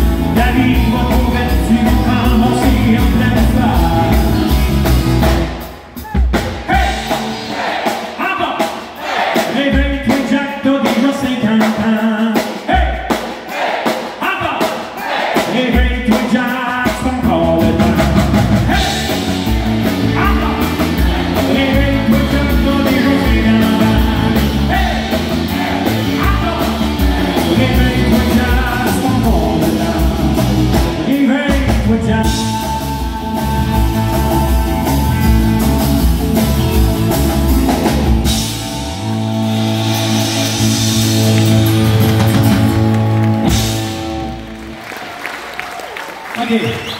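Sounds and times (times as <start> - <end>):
man singing: 0.0 - 4.8, 6.6 - 7.2, 9.4 - 13.2, 14.2 - 36.0
country rock band playing: 0.0 - 45.8.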